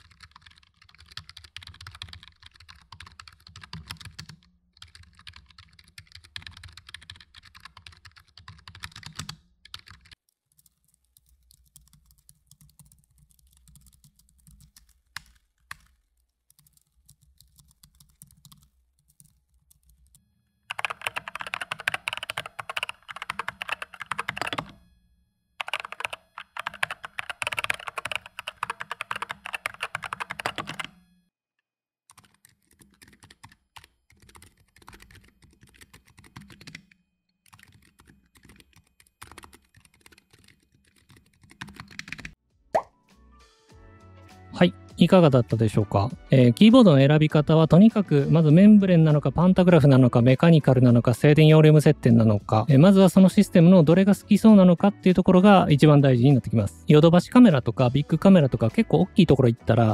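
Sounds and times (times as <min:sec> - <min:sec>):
loud typing on mechanical keyboard: 0:00.0 - 0:24.8, 0:25.6 - 0:31.0, 0:32.1 - 0:42.4
quiet typing on scissor-switch keys: 0:00.0 - 0:24.8, 0:25.6 - 0:31.0, 0:32.1 - 0:42.4
typing on membrane keyboard: 0:00.0 - 0:24.8, 0:25.6 - 0:31.0, 0:32.1 - 0:42.4.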